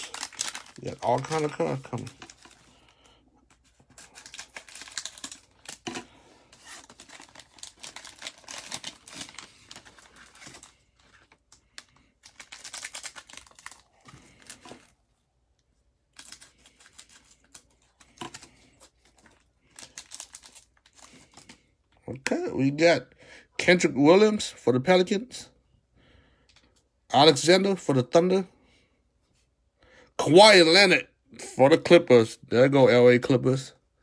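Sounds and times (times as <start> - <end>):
plastic wrapper crackling: 0.0 - 14.9, 16.1 - 21.6.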